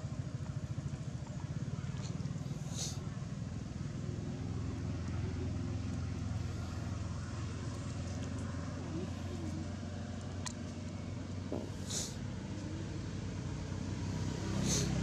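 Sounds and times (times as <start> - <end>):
faint distant voices: 0.0 - 15.0
low background rumble: 0.0 - 15.0.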